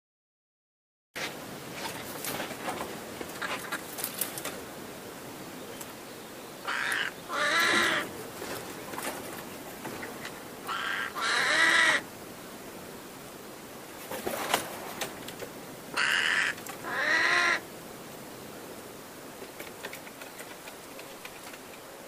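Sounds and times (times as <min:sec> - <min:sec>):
crow harsh nasal calls: 0:06.6 - 0:08.1, 0:10.7 - 0:12.1, 0:15.9 - 0:17.6
faint sharp clicks: 0:19.4 - 0:21.9.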